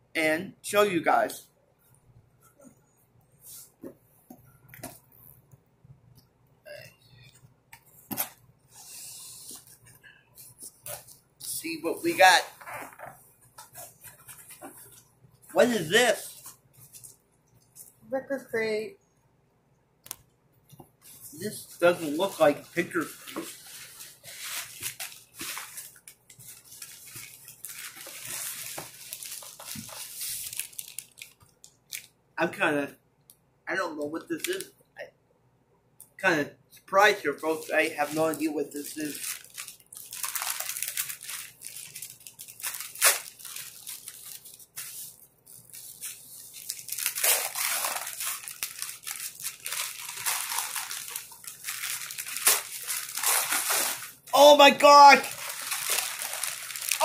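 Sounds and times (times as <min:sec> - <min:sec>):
packaging rustling and crinkling: 0:21.0 - 0:32.2, 0:37.5 - 0:54.3, 0:55.1 - 0:57.0
sharp crackle: 0:55.2 - 0:57.0.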